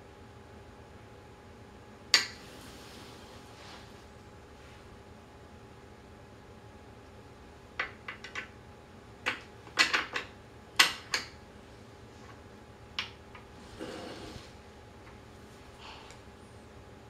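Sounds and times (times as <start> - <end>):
soft rustle: 2.4 - 5.0.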